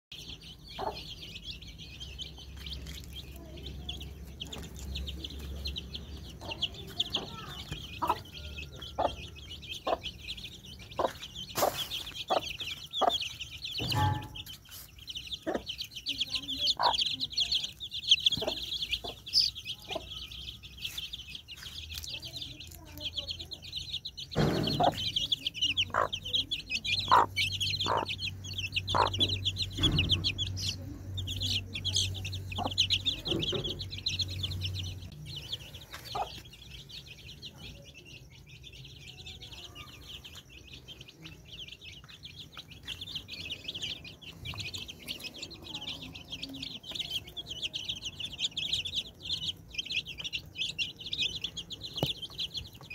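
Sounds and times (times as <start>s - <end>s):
chicks peeping: 0.1s - 52.9s
hen clucking: 0.6s - 1.4s, 3.8s - 20.3s, 24.4s - 35.1s, 35.9s - 36.5s.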